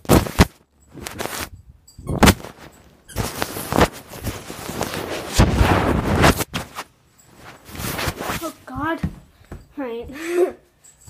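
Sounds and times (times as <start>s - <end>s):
microphone handling rustle: 0.0s - 8.8s.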